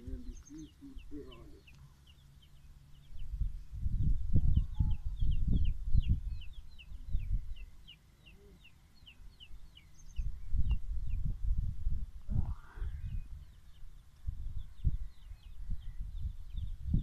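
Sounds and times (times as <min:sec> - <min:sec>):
small birds chirping: 0:00.0 - 0:17.0
low rumbling noise: 0:10.1 - 0:17.0.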